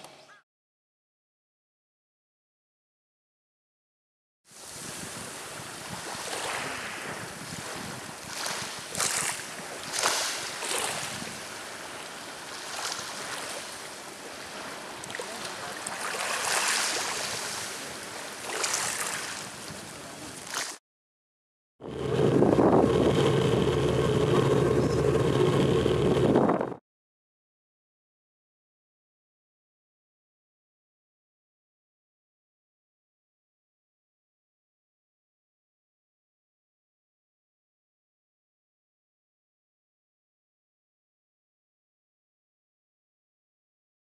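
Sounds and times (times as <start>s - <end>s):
small waves lapping on pebbles: 4.6s - 20.8s
ship engine drone: 21.8s - 26.8s.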